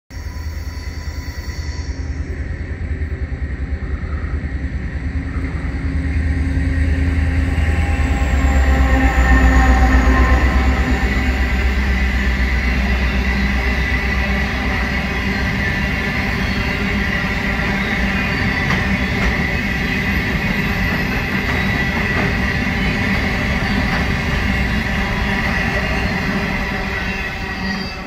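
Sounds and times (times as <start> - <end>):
locomotive diesel throbbing: 0.3 - 28.0
high whine dropping in pitch: 1.8 - 20.2.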